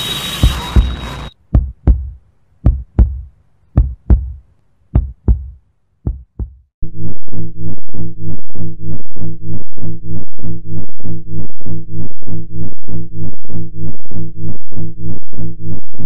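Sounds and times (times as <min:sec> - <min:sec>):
pulsing electronic tone: 0:00.0 - 0:01.4, 0:06.8 - 0:16.0
heartbeat thumps: 0:00.4 - 0:16.0.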